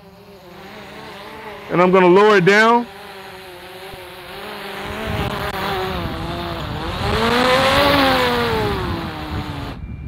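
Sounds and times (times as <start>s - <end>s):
drone propellers whining: 0.0s - 10.0s
wind rumble on microphone: 4.8s - 10.0s.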